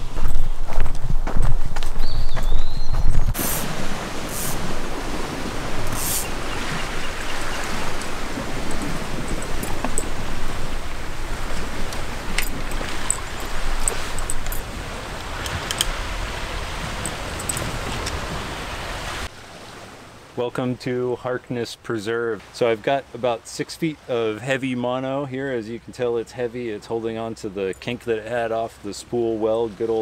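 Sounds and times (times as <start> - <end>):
waves washing against rocks: 3.3 - 20.2.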